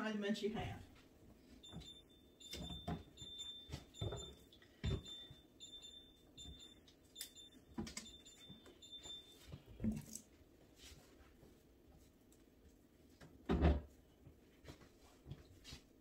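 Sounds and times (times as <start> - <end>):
refrigerator door alarm beeping: 1.6 - 9.9.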